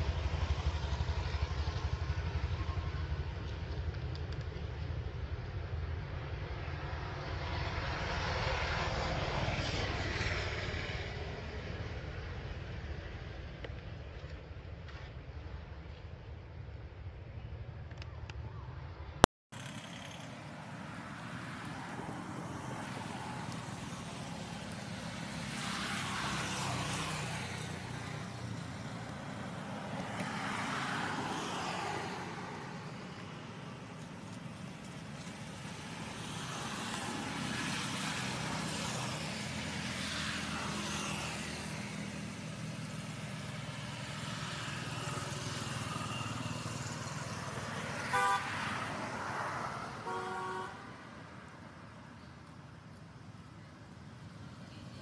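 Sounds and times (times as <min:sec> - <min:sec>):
vehicles passing: 0:00.0 - 0:55.0
vehicle horn toots: 0:48.1 - 0:48.6, 0:50.0 - 0:50.8.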